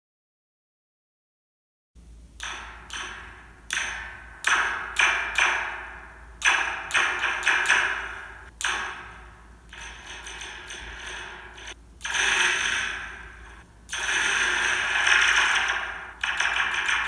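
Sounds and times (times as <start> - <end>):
pencil striking metal spring: 2.4 - 17.0.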